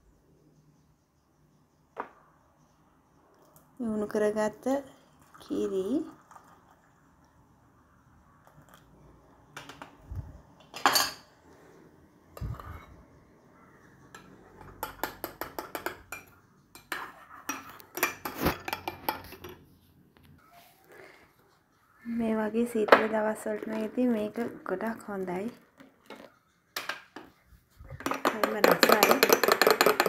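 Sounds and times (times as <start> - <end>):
metal spoon clinking in mug: 10.7 - 11.3, 28.0 - 30.0.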